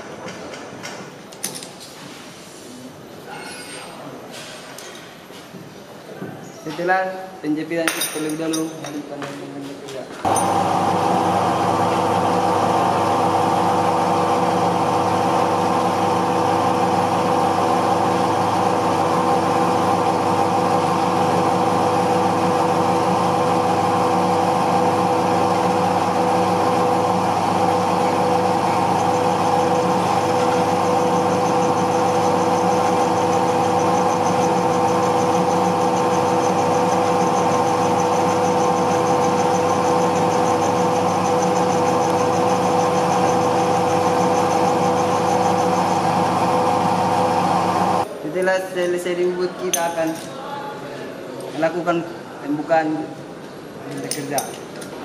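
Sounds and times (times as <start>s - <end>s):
metal lathe motor humming: 10.3s - 48.1s.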